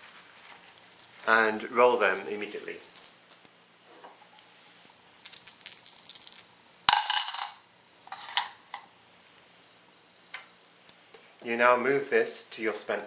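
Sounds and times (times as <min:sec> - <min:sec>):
dice clattering: 0:00.9 - 0:03.5, 0:05.2 - 0:07.6
dice clacking into a bowl: 0:02.7 - 0:03.4, 0:05.2 - 0:07.6.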